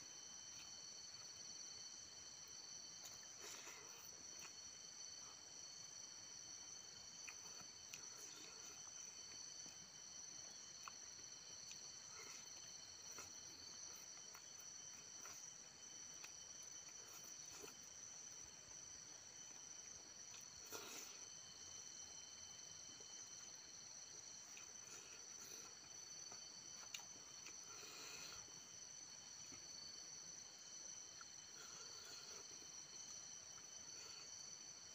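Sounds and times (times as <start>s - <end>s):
high-pitched insect chorus: 0.0s - 34.9s
chewing clicks and smacks: 7.1s - 17.9s, 24.5s - 27.7s.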